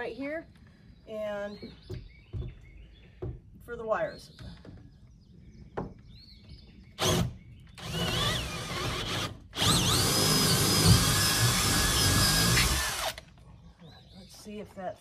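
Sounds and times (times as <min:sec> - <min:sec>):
cordless drill boring wood: 0:07.0 - 0:13.2.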